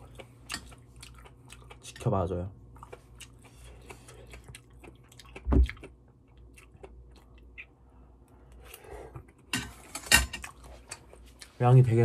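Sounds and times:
close chewing with wet crackles: 0.0s - 7.8s.

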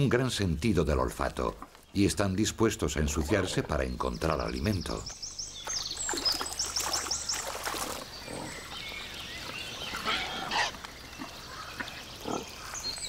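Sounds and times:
boar snuffling and splashing: 5.6s - 13.0s.

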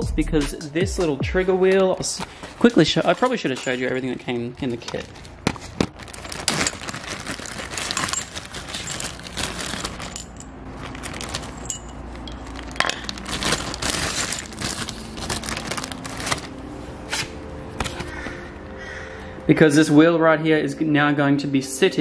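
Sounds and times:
plastic bag crinkling: 1.9s - 16.7s
metal parts clinking on concrete: 3.0s - 5.0s, 7.9s - 13.2s.

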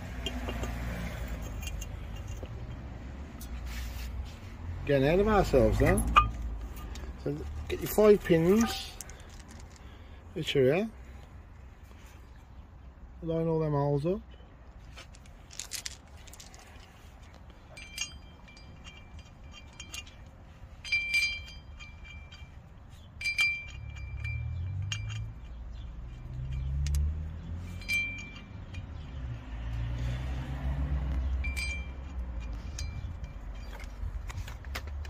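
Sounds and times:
steel bolts clinking on metal: 0.1s - 2.8s, 5.1s - 9.9s, 15.0s - 29.7s.

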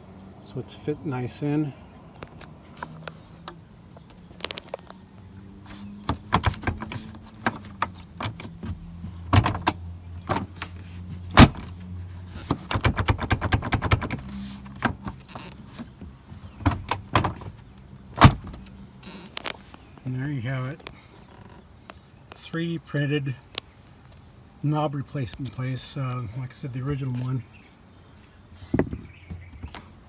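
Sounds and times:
tailgate latch clicks and rattles: 6.0s - 10.7s, 11.3s - 11.7s, 12.5s - 17.6s, 18.2s - 18.6s.

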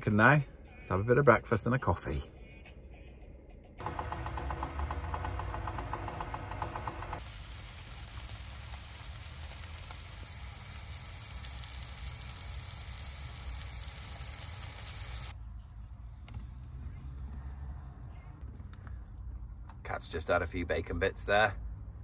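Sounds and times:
kettle humming: 3.8s - 15.3s
mushrooms sizzling in a frying pan: 7.2s - 15.3s.

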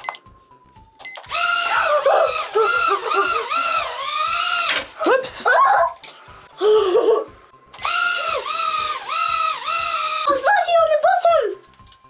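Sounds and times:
toy quadcopter motors whining: 1.3s - 5.0s, 7.8s - 10.3s.

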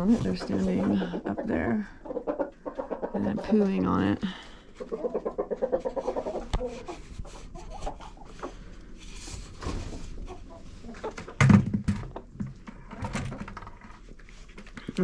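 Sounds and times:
chickens clucking softly: 0.0s - 8.9s, 9.8s - 11.4s.

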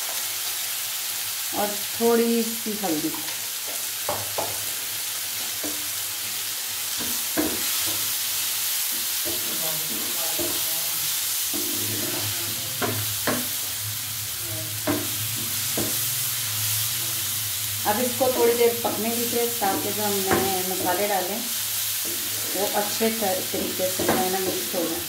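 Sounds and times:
spices sizzling in hot oil: 0.0s - 25.0s
spatula scraping a pan: 8.8s - 13.8s, 21.7s - 24.7s.

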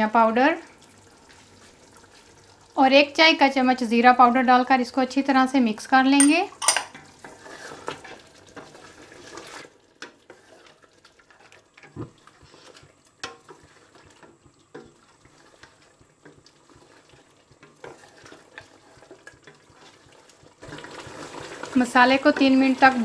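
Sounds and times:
spoon knocking against pot: 6.2s - 7.0s
spoon scraping in pot: 6.2s - 20.8s.

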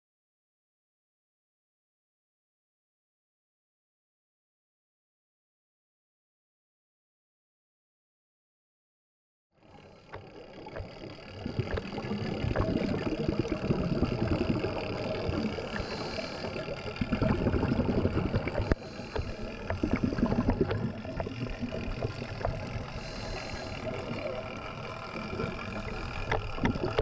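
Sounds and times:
sharp clicks underwater: 10.0s - 27.0s
diver exhaled bubbles rumbling: 10.6s - 27.0s.

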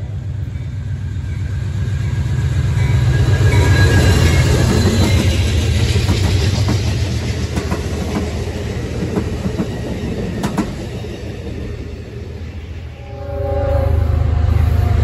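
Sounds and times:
train cars rumbling by: 0.0s - 15.0s
wheels clicking over rail joints: 4.1s - 12.0s.

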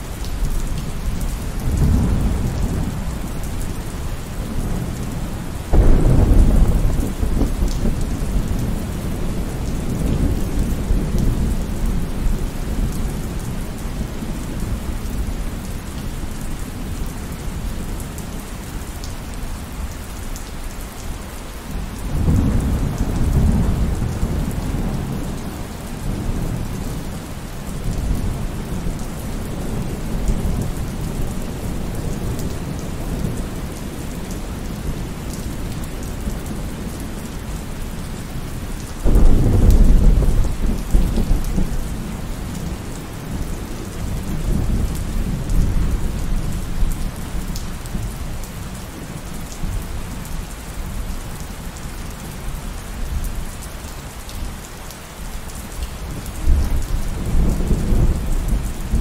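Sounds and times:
steady rain: 0.0s - 59.0s
low rumble of thunder: 0.3s - 18.2s, 21.7s - 51.2s, 56.1s - 59.0s
loud thunderclap: 5.7s - 8.8s, 39.0s - 41.7s.

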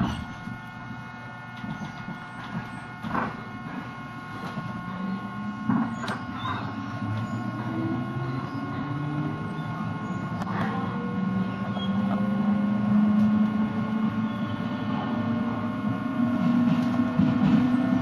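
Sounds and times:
train motors humming: 0.0s - 18.0s
train wheels knocking: 16.2s - 18.0s.

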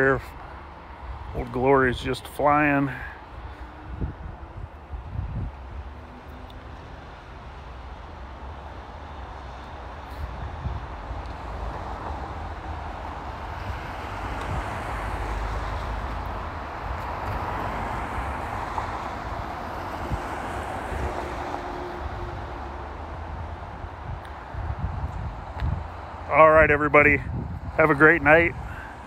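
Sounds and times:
road traffic: 0.0s - 29.0s
wind buffeting microphone: 3.3s - 6.0s, 9.4s - 29.0s.

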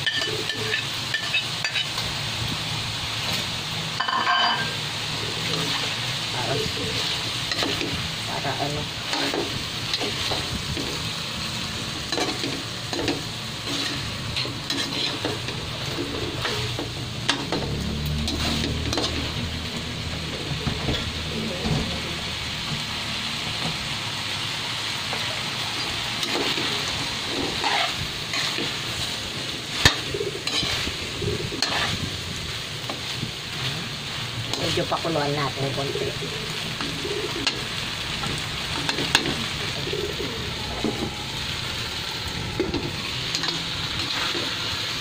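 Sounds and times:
metal spatula scraping a pan: 0.0s - 2.0s, 12.0s - 19.4s, 26.2s - 32.1s
spatula clanking on pan: 0.0s - 2.0s, 4.0s - 4.8s
food sizzling in a pan: 0.0s - 45.0s.

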